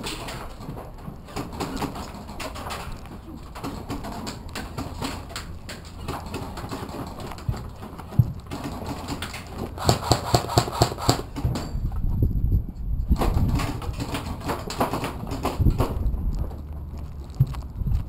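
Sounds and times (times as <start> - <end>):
rapid sharp clicks: 9.1 - 11.3
footsteps on dirt floor: 14.1 - 18.0.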